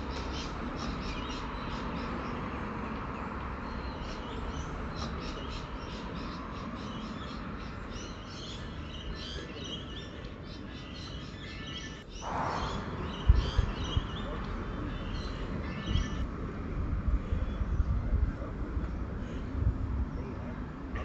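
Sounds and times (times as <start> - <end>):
small birds chirping: 0.0 - 16.3.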